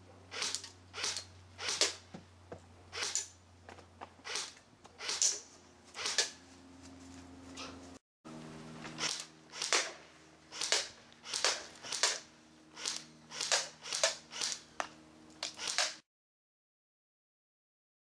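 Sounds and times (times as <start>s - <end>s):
airsoft rifle single shots: 6.0s - 6.4s, 9.0s - 14.6s.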